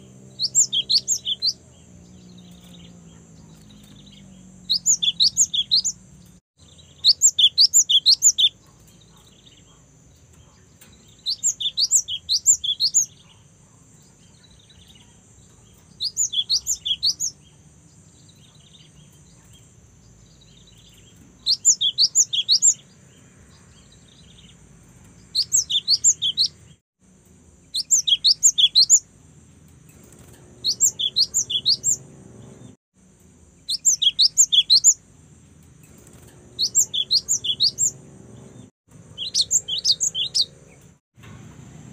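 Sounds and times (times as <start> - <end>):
bird singing high sharp notes: 0.3 - 6.0, 6.6 - 8.6, 11.1 - 13.2, 15.9 - 17.4, 20.3 - 22.8, 25.2 - 26.8, 27.7 - 29.0, 30.6 - 32.6, 33.6 - 35.0, 36.5 - 40.8.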